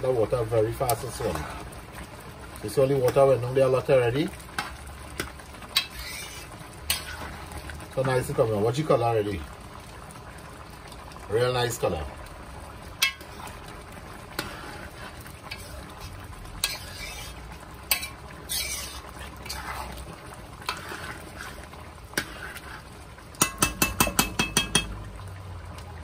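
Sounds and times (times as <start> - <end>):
metal spoon stirring in a pot: 0.8 - 1.8, 4.5 - 8.4, 13.0 - 25.0
spoon tapping metal pot: 13.0 - 13.2, 23.4 - 25.0.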